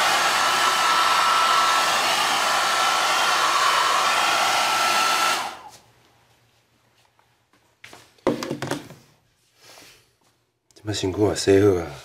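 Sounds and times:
hair dryer blowing: 0:00.0 - 0:05.8.

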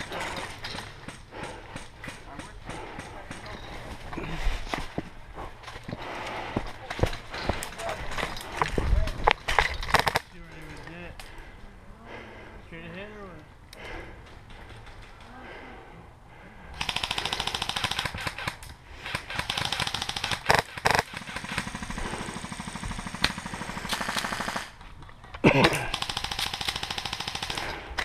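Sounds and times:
airsoft gun full-auto bursts: 0:09.9 - 0:10.2, 0:16.8 - 0:24.8, 0:25.8 - 0:28.0.

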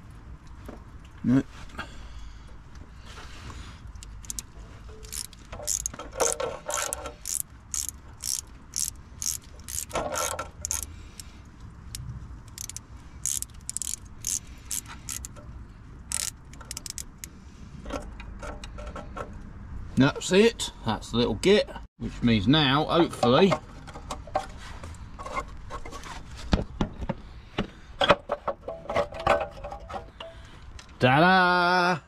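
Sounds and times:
socket ratchet clicking: 0:04.0 - 0:10.9, 0:11.9 - 0:15.4, 0:16.1 - 0:17.3.

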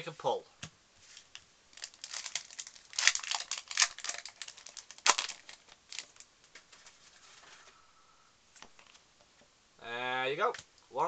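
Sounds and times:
foil wrapper tearing and crinkling: 0:01.7 - 0:06.3.

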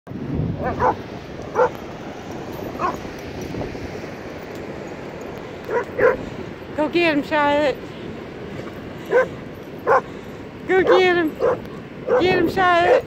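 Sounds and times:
surf rushing: 0:00.1 - 0:13.0
wind: 0:00.1 - 0:13.0
dogs yipping barks: 0:00.6 - 0:01.8, 0:02.8 - 0:03.0, 0:05.6 - 0:06.2, 0:09.0 - 0:10.1, 0:10.8 - 0:13.0.

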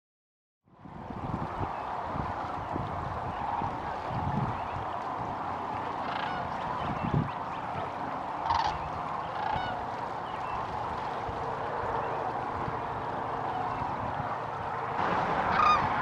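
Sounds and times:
flock of cranes calling: 0:06.0 - 0:07.0, 0:07.8 - 0:09.9, 0:15.4 - 0:16.0.

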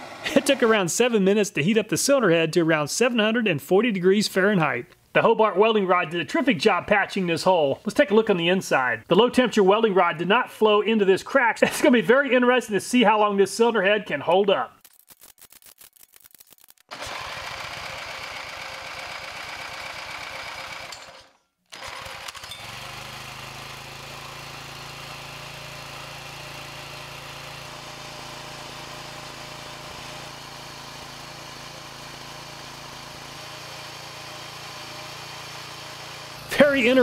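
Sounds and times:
small engine running steadily: 0:00.0 - 0:00.7, 0:16.9 - 0:37.0.

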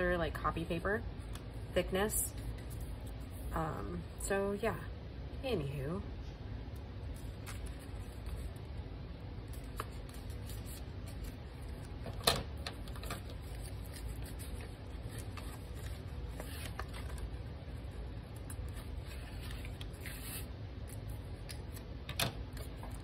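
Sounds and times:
steady low hum: 0:00.0 - 0:23.0
paper being handled and creased: 0:07.1 - 0:08.7, 0:09.4 - 0:12.1, 0:12.7 - 0:21.8.

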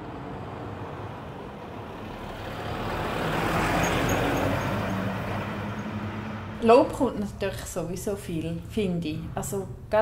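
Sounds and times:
truck driving past: 0:00.0 - 0:07.7.

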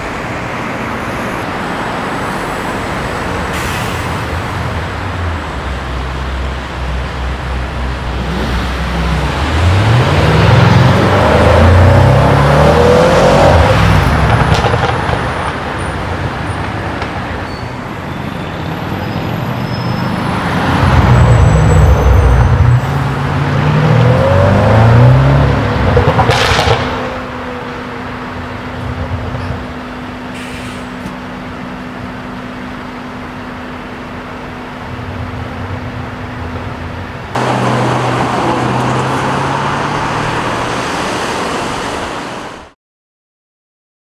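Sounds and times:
quiet traffic: 0:00.0 - 0:42.8
car engine accelerating hard: 0:08.0 - 0:15.1, 0:20.2 - 0:27.5, 0:37.3 - 0:42.0
sharp crack: 0:26.2 - 0:27.3.

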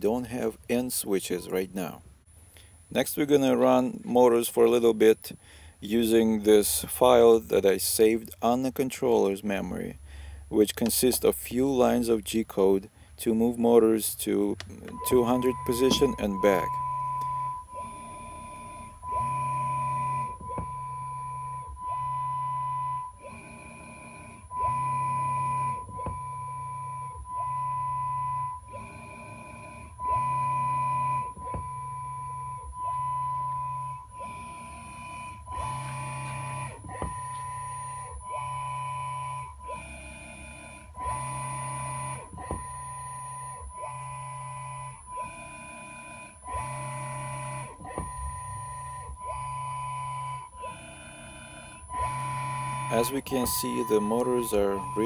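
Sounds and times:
servo motor whine: 0:14.5 - 0:55.0.

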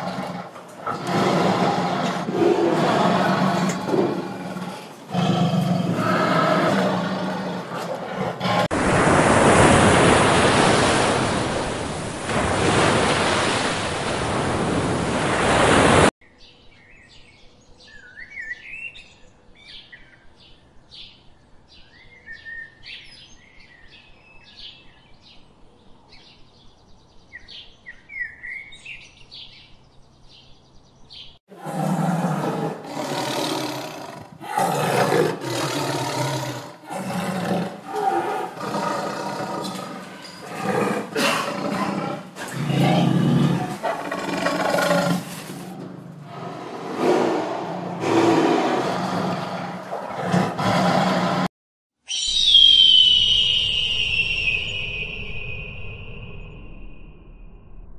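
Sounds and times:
deep animal roars: 0:00.0 - 0:08.7, 0:31.5 - 0:51.5
birds chirping and singing: 0:39.7 - 0:40.9.

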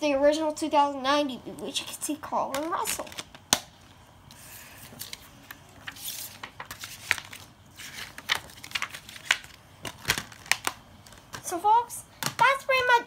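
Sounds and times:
paper insert rustling: 0:04.8 - 0:11.4.

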